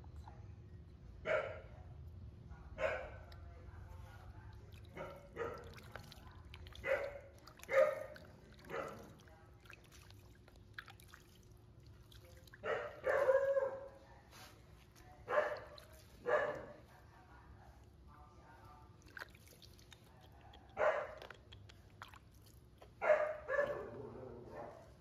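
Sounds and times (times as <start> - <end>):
water sloshing in plastic basin: 4.0 - 13.3, 14.5 - 16.4, 18.8 - 23.0.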